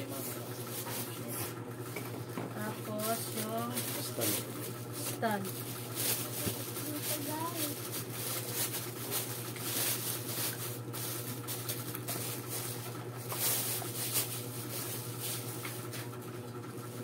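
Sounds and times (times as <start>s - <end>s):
low electrical hum: 0.0s - 17.0s
plastic wrapping crinkling: 2.6s - 15.9s.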